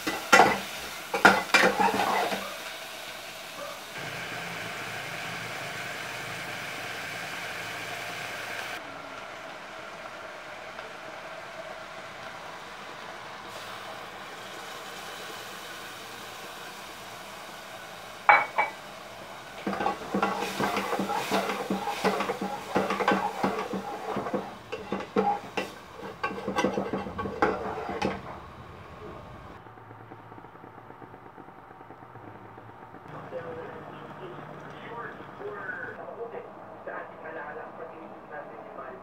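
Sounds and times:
spoon scraping saucepan: 1.2s - 2.4s, 19.6s - 28.2s.

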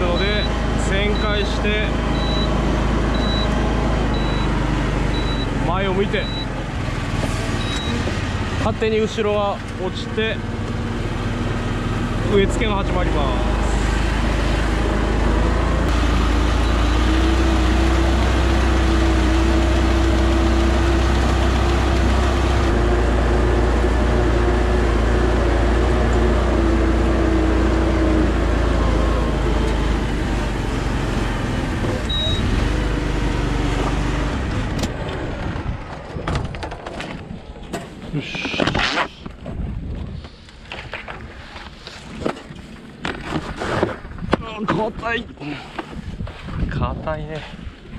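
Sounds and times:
rice transplanter engine hum: 0.0s - 36.1s.

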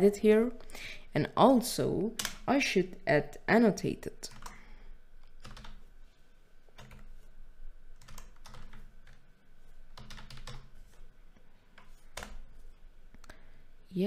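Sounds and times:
computer keyboard typing: 2.2s - 2.5s, 4.2s - 4.6s, 5.2s - 5.9s, 6.7s - 7.3s, 8.0s - 9.3s, 9.9s - 11.0s, 11.8s - 12.6s.

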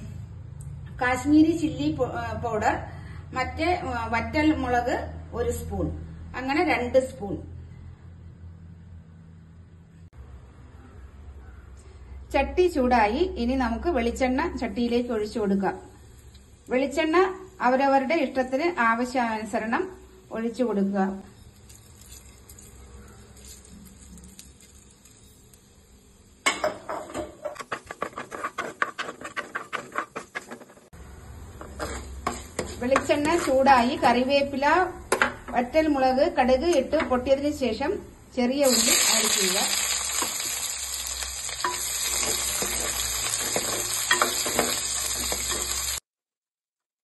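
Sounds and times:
shallots sizzling in oil: 13.0s - 34.8s, 35.4s - 46.1s
mustard seeds popping in oil: 21.5s - 25.8s, 38.7s - 46.0s
wooden spoon stirring: 27.4s - 30.9s, 31.6s - 33.8s, 41.6s - 45.9s.

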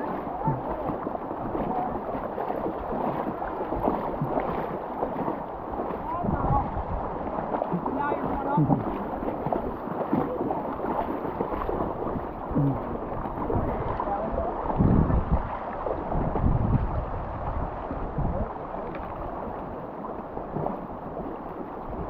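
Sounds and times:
sloshing steps in water: 0.0s - 6.5s, 7.2s - 14.1s
river water rushing and gurgling: 0.0s - 22.0s
wind on microphone: 0.0s - 22.0s.

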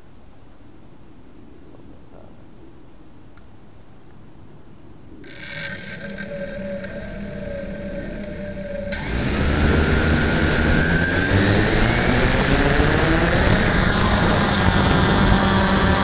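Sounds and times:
model airplane motor whining: 5.2s - 16.0s.

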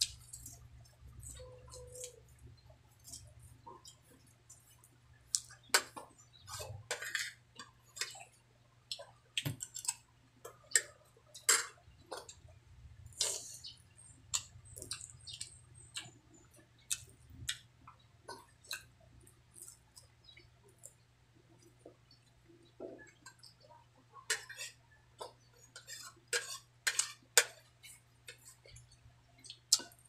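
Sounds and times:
person chewing and lip smacking: 0.0s - 6.0s, 8.9s - 12.5s, 13.1s - 21.0s, 26.9s - 30.0s.

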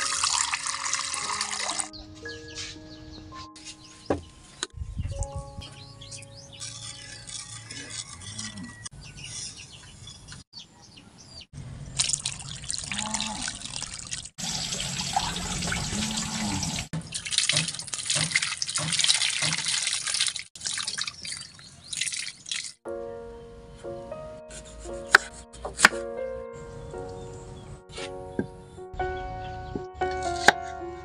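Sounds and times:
water pouring from a bowl: 0.0s - 1.9s, 11.8s - 22.8s
tap water splashing: 16.9s - 22.8s.

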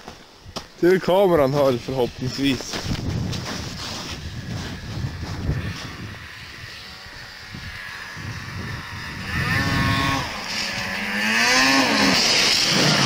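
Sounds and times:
rushing hiss over snow: 0.1s - 6.4s
snowmobile engine revving: 3.4s - 13.0s.

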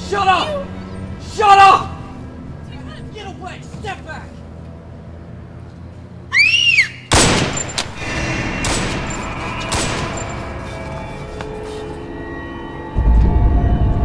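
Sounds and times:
handgun shots echoing: 7.1s - 8.0s
music: 8.0s - 14.0s.

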